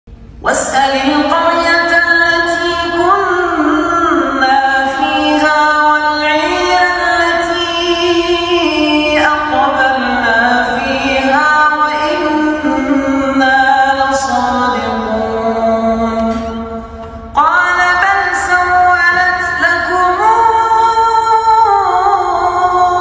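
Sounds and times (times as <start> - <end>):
man chanting melodic recitation: 9.2 - 11.3.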